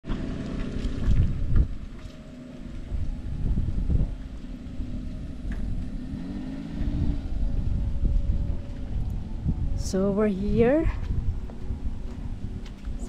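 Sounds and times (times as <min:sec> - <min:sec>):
truck engine driving past: 0:00.0 - 0:09.8
wind buffeting microphone: 0:00.1 - 0:13.0.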